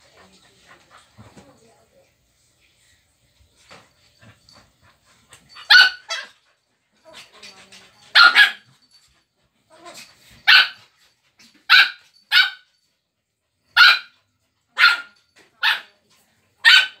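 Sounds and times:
dog barking: 5.6 - 6.4, 8.1 - 8.7, 10.5 - 10.8, 11.7 - 12.7, 13.8 - 14.2, 14.8 - 15.9, 16.6 - 17.0.

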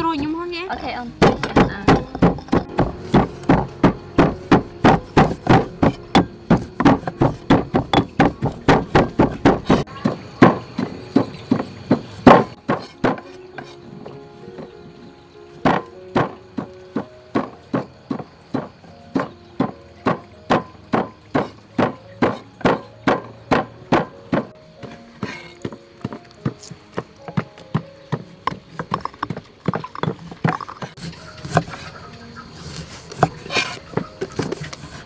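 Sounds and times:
pestle pounding in stone mortar: 1.1 - 13.8, 15.6 - 24.6, 25.2 - 31.7
knife chopping on wooden board: 1.2 - 13.8, 17.4 - 24.5.

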